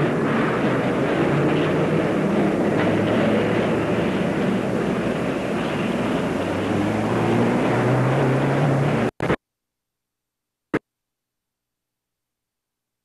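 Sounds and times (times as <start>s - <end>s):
vehicle hum rising in pitch: 0.0s - 9.2s.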